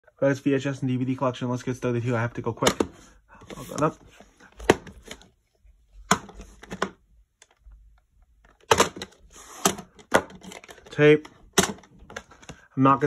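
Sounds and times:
plastic cassettes clicking and knocking: 2.3 - 5.4, 6.0 - 12.7.

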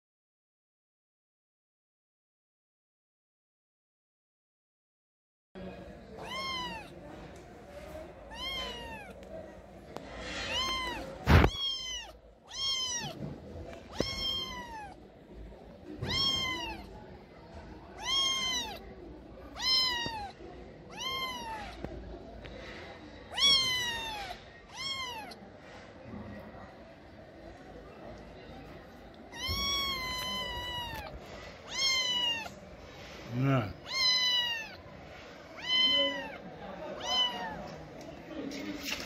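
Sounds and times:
cat meowing: 6.2 - 6.9, 8.3 - 9.2, 10.4 - 15.0, 16.0 - 16.9, 18.0 - 18.8, 19.5 - 21.9, 23.3 - 25.4, 29.3 - 32.6, 33.6 - 34.8, 35.6 - 36.4, 37.0 - 37.6.

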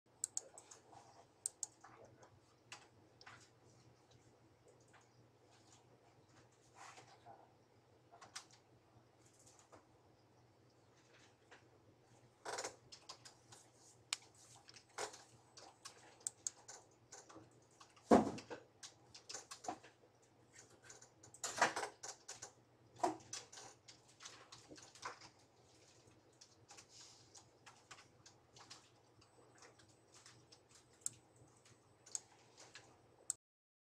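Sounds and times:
keyboard and mouse clicks: 0.1 - 5.2, 12.5 - 20.0, 20.6 - 25.4, 26.3 - 33.4.

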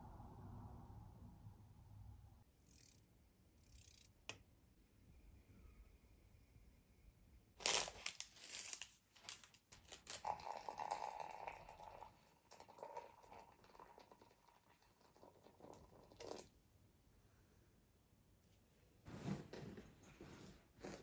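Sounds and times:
crinkling and crunching: 7.6 - 10.4
hot water trickling into coffee: 9.8 - 16.6.

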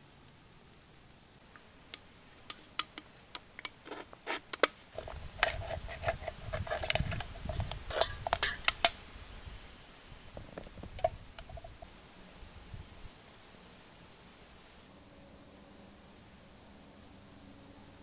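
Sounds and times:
knife clicking and scraping metal can: 2.4 - 9.0.

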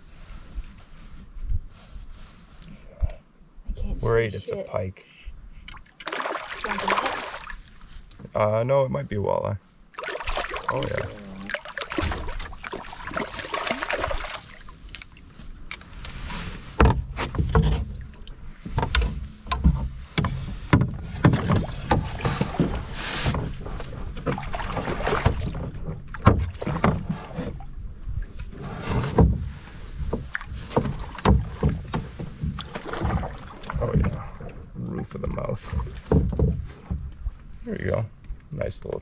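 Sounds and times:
water splashing and dripping: 5.7 - 8.0, 9.9 - 15.8, 24.2 - 27.0, 30.2 - 36.6
knocks against a canoe: 16.7 - 27.7, 28.9 - 34.6, 35.6 - 37.4.

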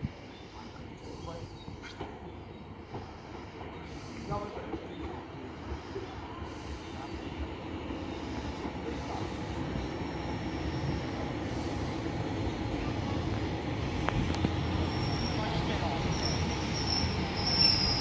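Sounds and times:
train engine and wheel noise: 0.0 - 18.0
high wheel squeal: 9.9 - 11.9, 14.7 - 18.0.

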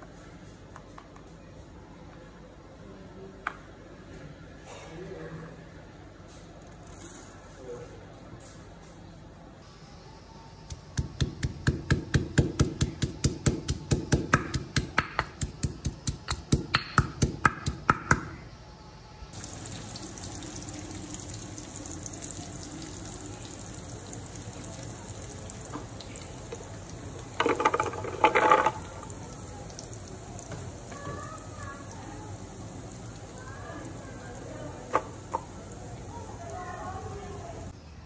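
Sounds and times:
pestle pounding in stone mortar: 10.7 - 18.3
faint steady hiss: 18.7 - 38.0.

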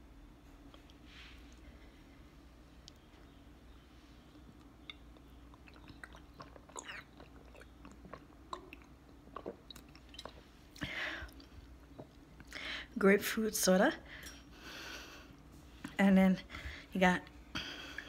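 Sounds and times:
person swallowing: 5.5 - 10.4.

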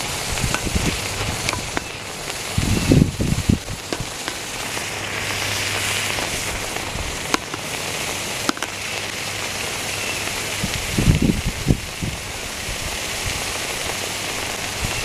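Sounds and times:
sharp cracks: 0.0 - 9.6
chicken sizzling under molten metal: 0.0 - 15.0.

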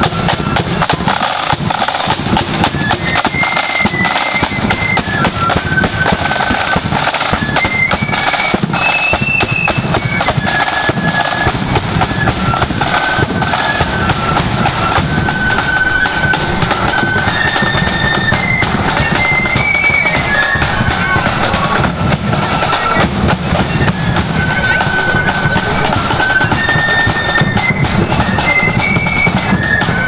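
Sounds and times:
high flute melody: 0.0 - 30.0
side drum beating: 0.0 - 30.0
bass drum: 3.9 - 26.2.

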